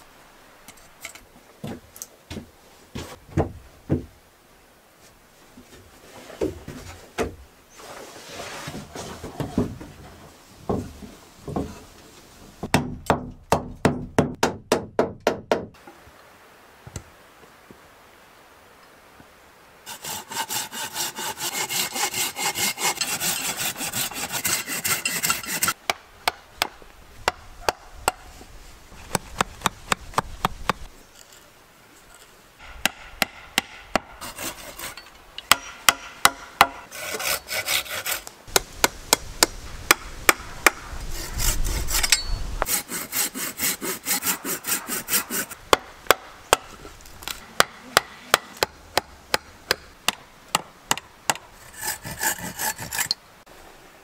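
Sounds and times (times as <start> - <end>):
saw cutting wood: 19.9 - 25.8, 32.6 - 35.1, 36.0 - 38.3, 40.6 - 45.6, 51.6 - 53.2.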